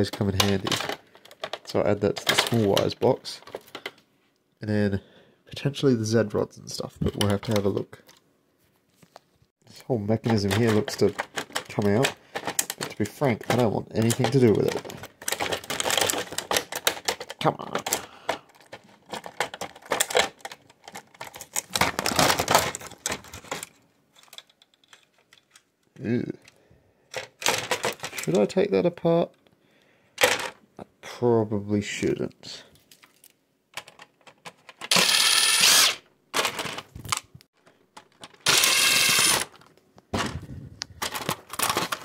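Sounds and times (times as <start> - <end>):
plastic printer parts clicking: 0.0 - 4.0, 10.1 - 28.5, 32.9 - 42.0
electric screwdriver whine: 34.9 - 36.0, 38.5 - 39.5.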